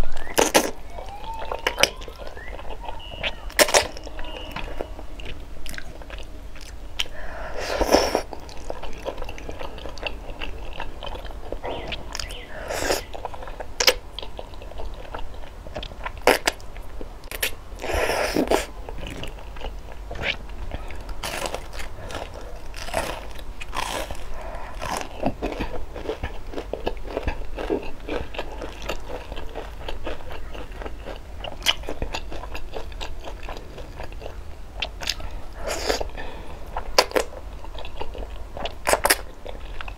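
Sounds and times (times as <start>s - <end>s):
chewing: 0.1s - 39.9s
crunching bites of fried food: 0.2s - 4.2s, 17.3s - 39.9s.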